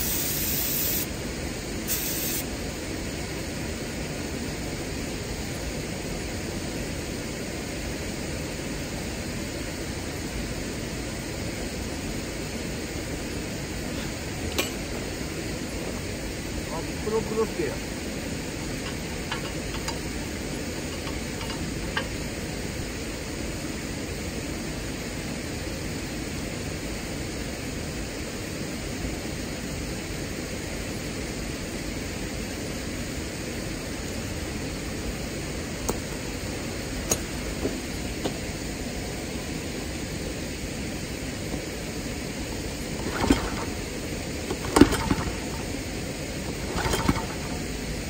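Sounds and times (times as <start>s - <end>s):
background hiss: 0.0s - 48.0s
light clicks and taps on engine: 18.7s - 20.2s, 20.8s - 22.2s, 35.8s - 36.2s, 37.0s - 38.4s, 43.0s - 43.9s, 44.5s - 45.8s, 46.5s - 47.8s.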